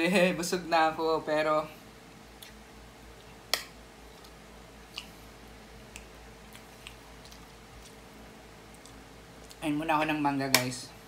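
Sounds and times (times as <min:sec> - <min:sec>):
faint steady hum: 0:00.0 - 0:11.0
person chewing food: 0:02.3 - 0:09.6.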